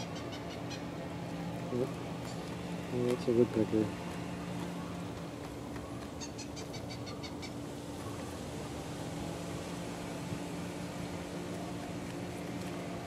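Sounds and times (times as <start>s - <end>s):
woodpecker calling: 0.0s - 1.0s, 4.6s - 8.4s.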